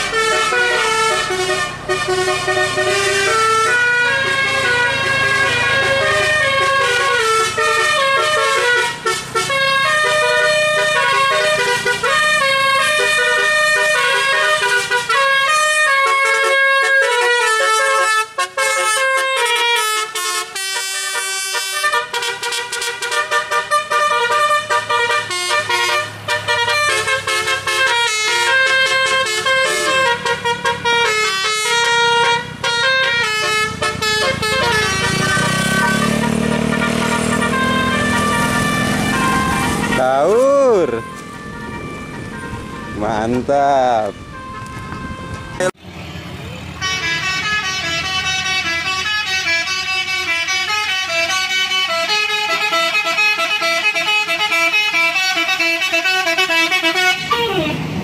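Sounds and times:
musical air horn playing tune: 0:00.0 - 0:45.8, 0:46.8 - 0:57.9.

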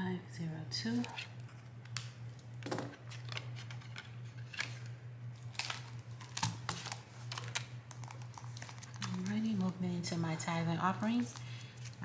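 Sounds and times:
steady low hum: 0:00.0 - 0:12.0
paper rustling: 0:05.4 - 0:09.7.

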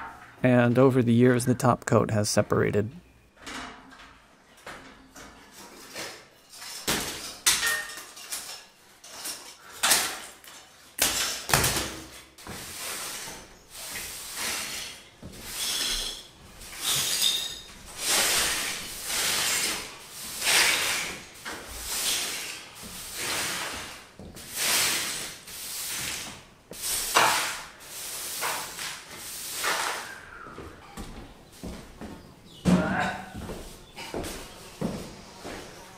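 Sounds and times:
straw broom sweeping rubble: 0:12.4 - 0:30.3.

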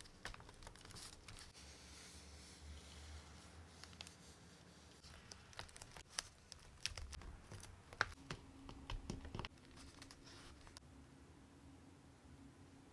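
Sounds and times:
paper crinkling: 0:00.0 - 0:01.6, 0:03.4 - 0:08.2, 0:09.1 - 0:10.8
fingers tapping on paper: 0:06.8 - 0:09.5.

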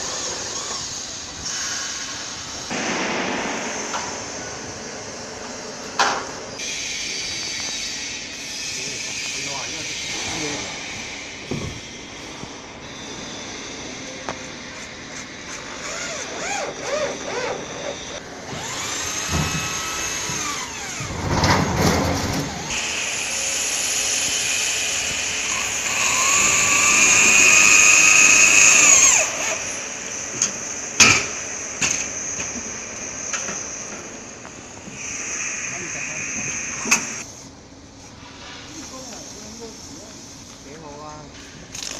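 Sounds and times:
sharp knocks: 0:02.7 - 0:06.3
cordless drill motor whining: 0:15.8 - 0:21.0, 0:22.8 - 0:29.6.

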